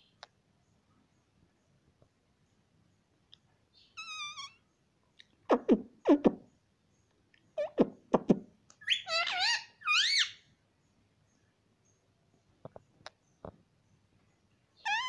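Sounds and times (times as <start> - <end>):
parakeet chirps: 3.8 - 4.6, 7.6 - 10.4, 14.8 - 15.0
parakeet calling: 3.9 - 4.6, 8.8 - 10.4, 14.8 - 15.0
parakeet squawks: 4.0 - 4.6, 8.8 - 10.4.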